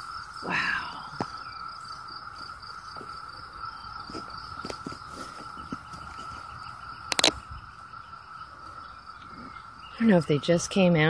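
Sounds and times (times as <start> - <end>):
cicadas droning: 0.0 - 11.0
sharp clicks: 7.1 - 7.4.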